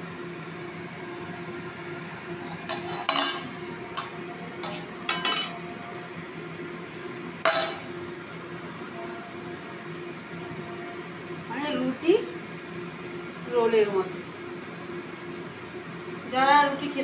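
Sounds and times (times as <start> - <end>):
metal spoon scraping metal pan: 2.4 - 5.6.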